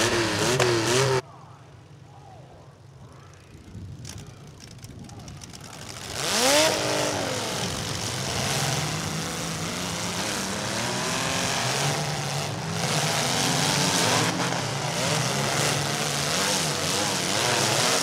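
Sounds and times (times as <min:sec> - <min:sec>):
car engines revving: 0:00.0 - 0:01.2, 0:05.5 - 0:18.0.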